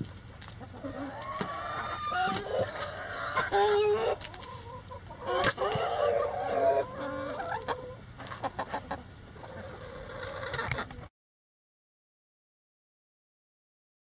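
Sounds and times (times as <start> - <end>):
chickens clucking: 0.3 - 11.1.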